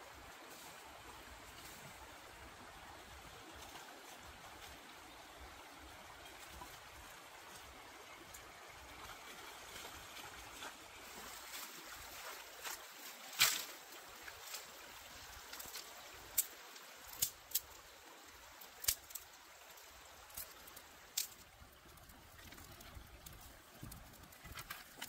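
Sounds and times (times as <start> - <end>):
stream trickling: 0.0 - 25.0
dry sticks knocking and cracking: 17.1 - 17.7, 18.7 - 19.2, 20.3 - 21.4.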